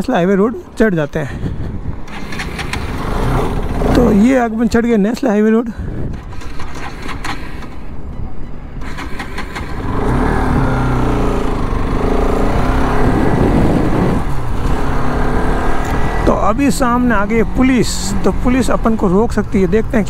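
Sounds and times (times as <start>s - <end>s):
motorcycle engine running: 8.8s - 20.0s.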